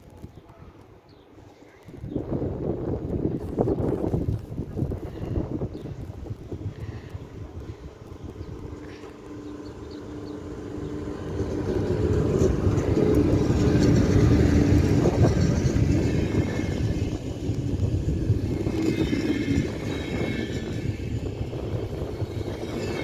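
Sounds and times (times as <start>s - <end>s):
train wheels rumbling on rail: 1.7s - 23.0s
locomotive hum: 2.7s - 23.0s.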